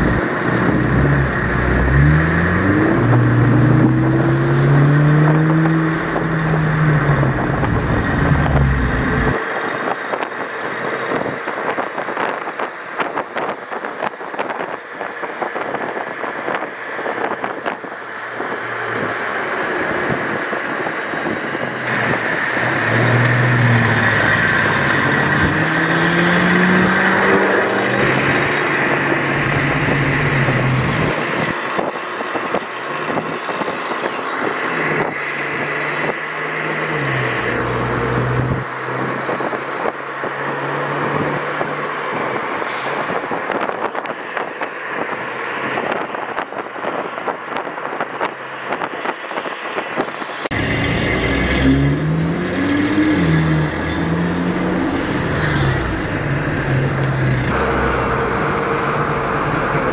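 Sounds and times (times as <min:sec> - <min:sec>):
car engine driving by: 0:50.5 - 0:59.9.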